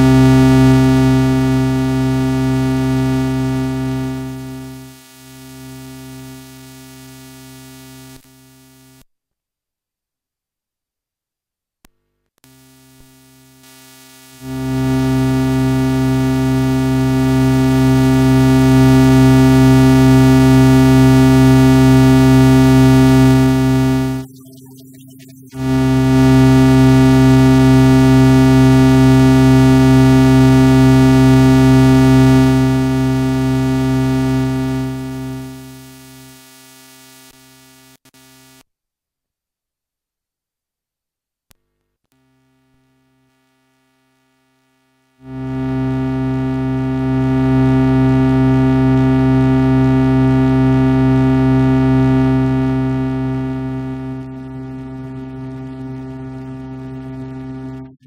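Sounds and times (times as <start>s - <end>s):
low synthesizer note: 14.3s - 36.0s, 45.2s - 58.0s.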